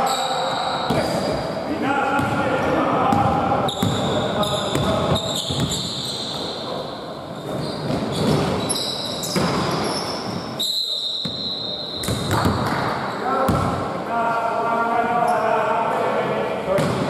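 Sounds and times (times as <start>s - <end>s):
sneaker squeaks: 0.0s - 1.6s, 3.6s - 13.6s
basketball bouncing on wooden floor: 12.0s - 12.7s.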